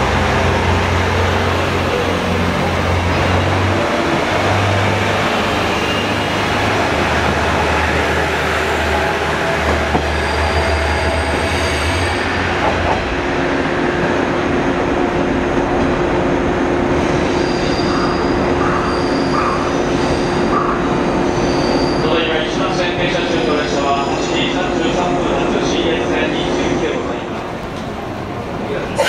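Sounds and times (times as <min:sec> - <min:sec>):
wheels rumbling on rails: 0:00.0 - 0:21.4
high-pitched wheel squeal: 0:10.0 - 0:12.2, 0:17.2 - 0:20.5, 0:21.2 - 0:22.2.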